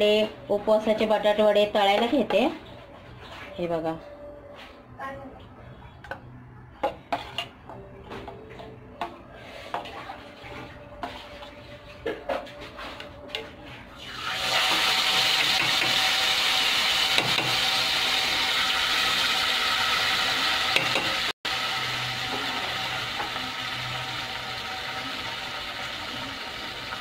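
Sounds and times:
batter sizzling in hot oil: 14.0 - 27.0.

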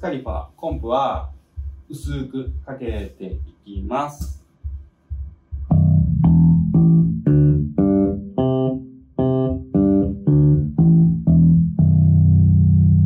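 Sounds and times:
electric bass plucked notes: 5.6 - 13.0.

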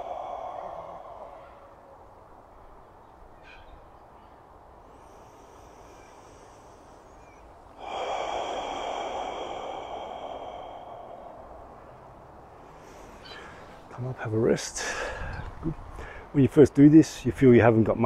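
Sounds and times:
man breathing out forcefully: 0.0 - 2.1, 4.8 - 13.8.

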